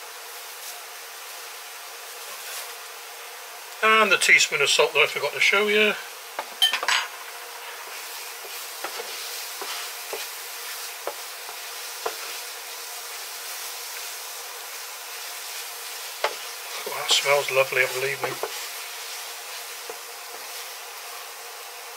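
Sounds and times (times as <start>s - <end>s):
paste sizzling in frying pan: 0.0s - 21.9s
spatula scraping and tapping pan: 7.8s - 12.5s, 16.1s - 20.7s.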